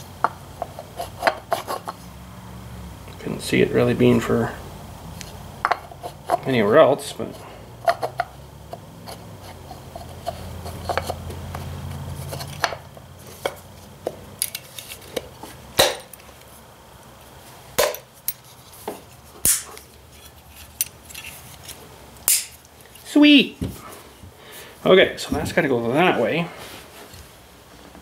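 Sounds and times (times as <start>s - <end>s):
low steady hum: 0.0s - 28.0s
small metal parts clinking: 14.4s - 15.2s, 20.2s - 23.1s.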